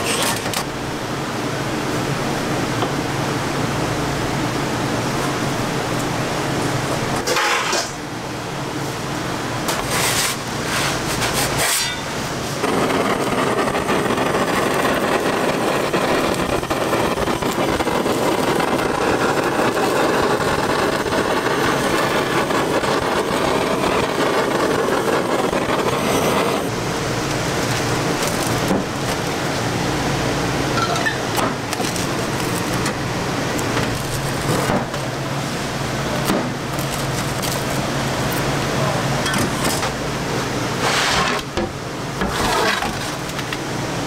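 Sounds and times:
low kitchen hum: 0.0s - 44.0s
pizza blade cutting through crust: 9.7s - 12.0s, 12.6s - 26.7s, 42.2s - 43.3s
blowtorch flame hissing: 9.7s - 39.2s.

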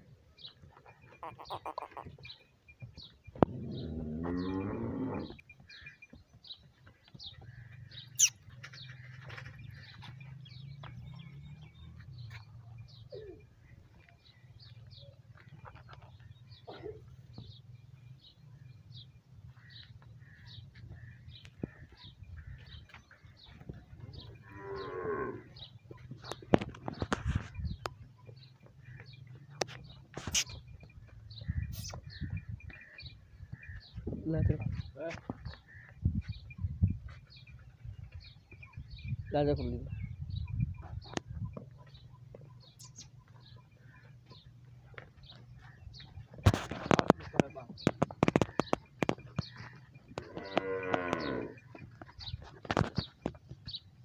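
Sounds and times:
high bird chirps: 1.1s - 2.9s, 8.0s - 8.4s, 42.6s - 43.4s
bull mooing: 3.4s - 5.4s, 24.4s - 25.6s, 50.2s - 51.6s.

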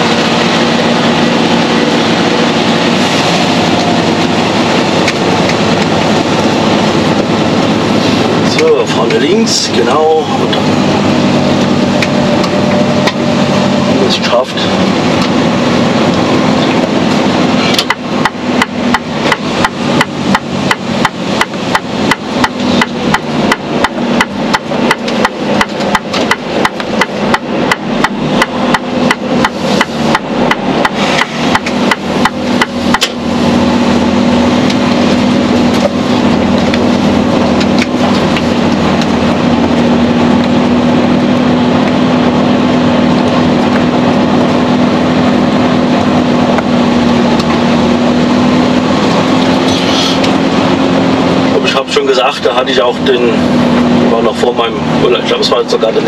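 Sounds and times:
diesel engine drone: 0.0s - 56.0s
turn signal ticking: 17.8s - 33.2s.

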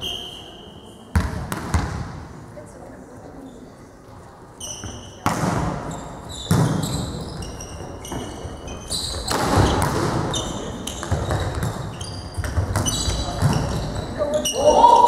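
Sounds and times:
volleyball hits: 1.1s - 2.3s, 4.8s - 7.3s, 9.0s - 14.2s
shoes squeaking on court floor: 4.6s - 14.6s.

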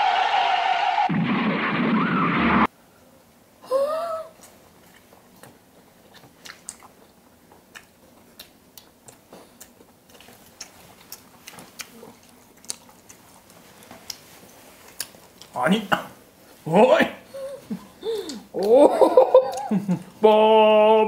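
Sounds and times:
people chewing: 4.3s - 15.6s, 17.6s - 20.2s.

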